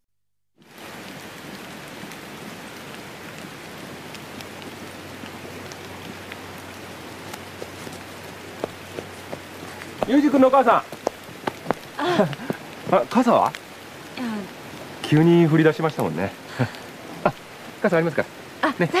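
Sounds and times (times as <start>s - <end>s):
rain falling: 0.6s - 19.0s
sharp drips: 2.8s - 19.0s.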